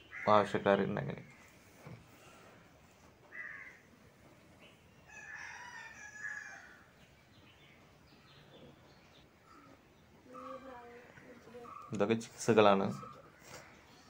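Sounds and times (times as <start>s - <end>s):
rooster crowing: 5.1s - 6.9s.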